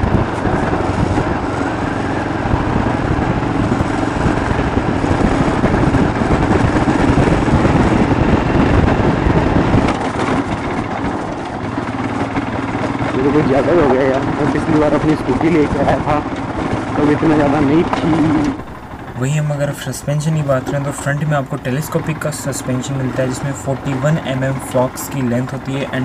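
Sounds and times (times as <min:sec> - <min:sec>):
motorcycle engine running: 0:00.0 - 0:26.0.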